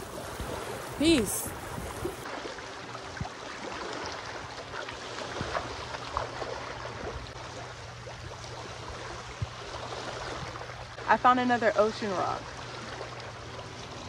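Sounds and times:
feet splashing in shallow water: 0:00.0 - 0:11.0
small waves lapping at shore: 0:00.0 - 0:14.0.

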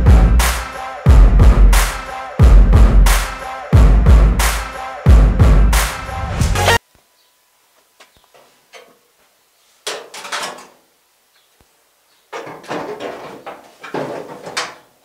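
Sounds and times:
sheet steel scraping and rattling: 0:09.9 - 0:10.8, 0:12.4 - 0:14.9.

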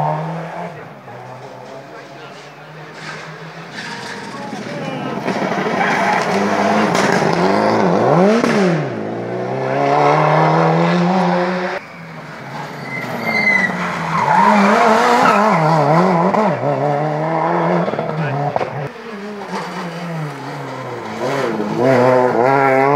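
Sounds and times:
rally car engine revving: 0:00.0 - 0:22.9.

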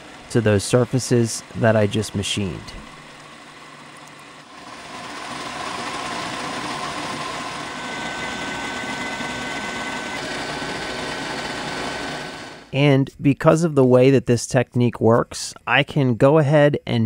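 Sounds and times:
steady high tone: 0:00.0 - 0:03.1, 0:04.0 - 0:14.3
milling cutter cutting steel: 0:00.0 - 0:12.7
milling machine spindle running: 0:00.0 - 0:12.7.

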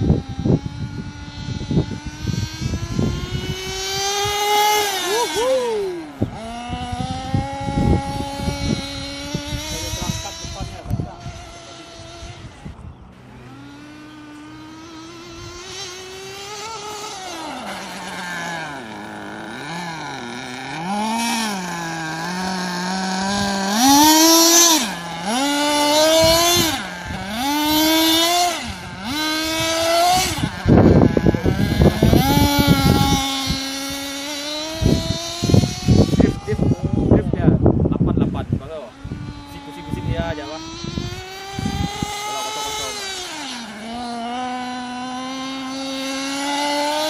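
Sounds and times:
small engine revving: 0:00.0 - 0:47.0.

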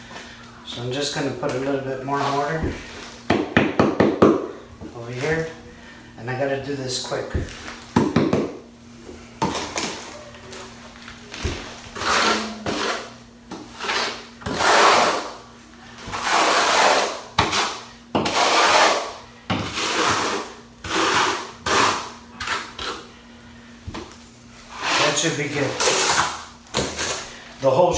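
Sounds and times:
trowel scraping mortar: 0:11.9 - 0:15.3, 0:16.1 - 0:23.0, 0:24.7 - 0:27.2.

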